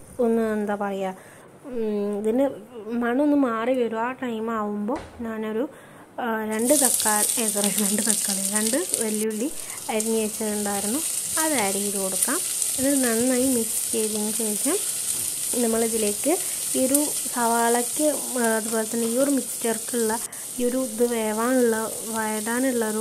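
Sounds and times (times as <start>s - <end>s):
onions sizzling in hot oil: 6.5s - 23.0s
wooden spatula stirring: 6.6s - 20.8s.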